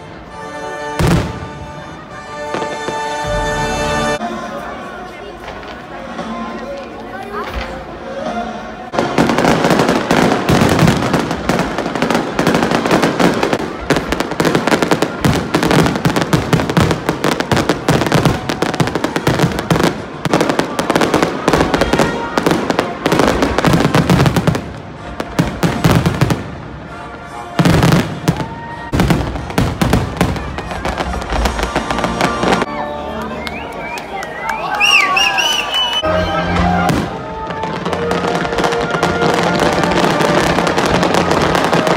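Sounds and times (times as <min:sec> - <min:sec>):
fireworks bursts and bangs: 0:00.9 - 0:04.2, 0:08.9 - 0:32.7, 0:36.5 - 0:41.9.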